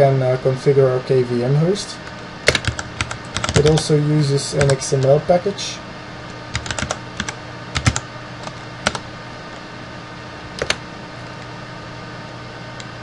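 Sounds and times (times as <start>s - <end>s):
steady low hum: 0.0s - 13.0s
keyboard keystrokes: 2.5s - 3.8s, 6.5s - 9.0s, 10.6s - 10.8s.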